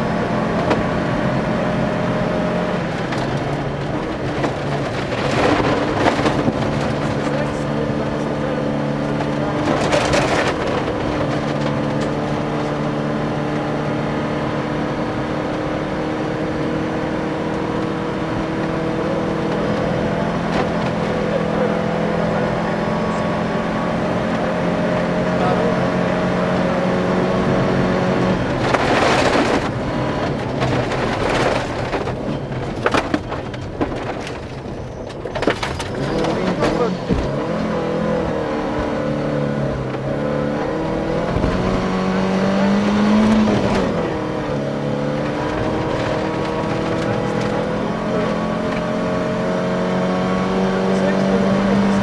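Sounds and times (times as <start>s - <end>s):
gravel and road noise: 0.0s - 52.0s
rally car engine under load: 0.0s - 52.0s
knocks and clatter: 3.0s - 8.3s, 9.0s - 12.8s, 28.4s - 37.7s.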